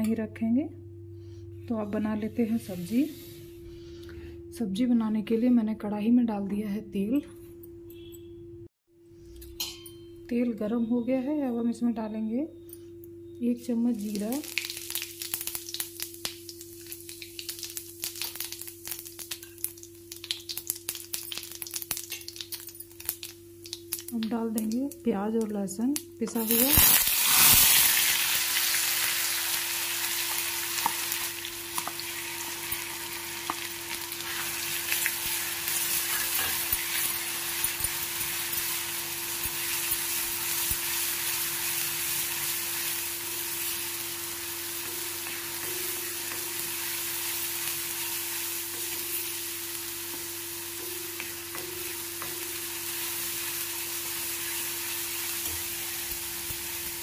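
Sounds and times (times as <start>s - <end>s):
paste sizzling in hot oil: 14.0s - 24.0s, 26.4s - 57.0s.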